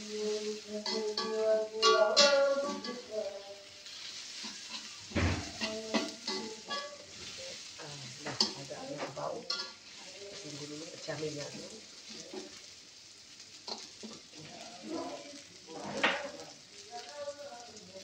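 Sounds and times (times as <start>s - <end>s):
metal spatula scraping a wok: 0.0s - 12.6s
food sizzling in hot oil: 0.0s - 18.0s.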